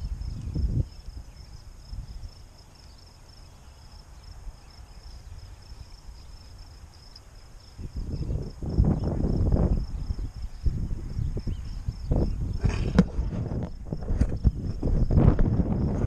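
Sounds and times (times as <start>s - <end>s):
wind rumble on microphone: 0.0s - 2.6s, 7.6s - 16.0s
insects trilling: 0.0s - 16.0s.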